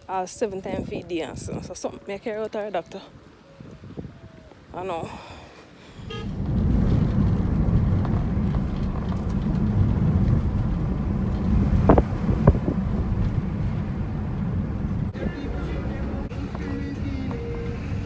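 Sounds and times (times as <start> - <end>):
car driving rumble: 6.0 - 18.0.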